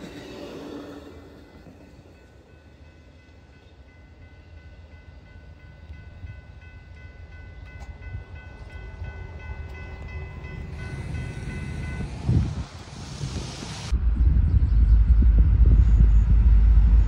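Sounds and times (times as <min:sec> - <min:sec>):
passenger train rumbling: 0:00.0 - 0:17.0
crossing bell dinging: 0:01.3 - 0:12.7.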